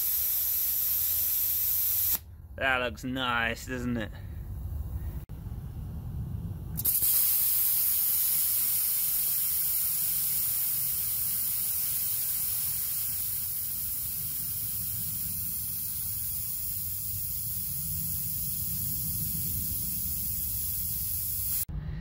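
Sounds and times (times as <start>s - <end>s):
compressed air hissing: 0.0s - 2.3s, 6.8s - 21.7s.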